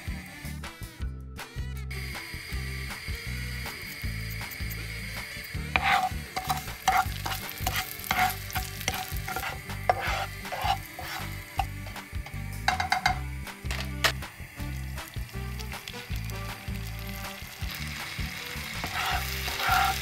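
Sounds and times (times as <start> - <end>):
butter sizzling: 2.0 - 20.0
spatula scraping frying pan: 5.6 - 13.9, 18.6 - 20.0.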